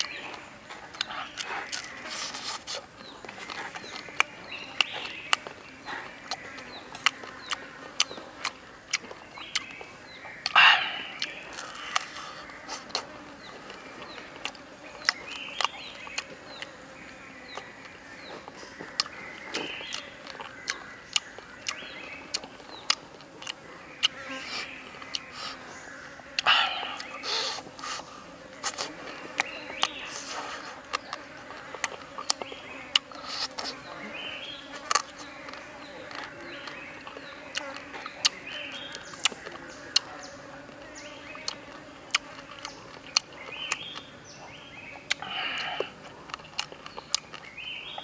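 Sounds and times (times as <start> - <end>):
wet lip-smacks and chewing: 0.0 - 16.7, 18.9 - 25.6, 26.3 - 33.8, 41.4 - 44.1, 45.0 - 48.0
meat being bitten and torn: 45.1 - 47.5.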